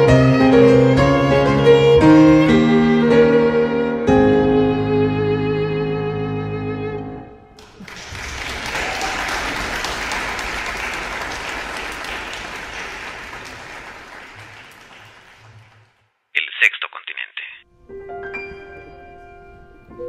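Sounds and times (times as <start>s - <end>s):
violin and piano chord: 0.0s - 7.5s
audience applause: 7.6s - 16.0s.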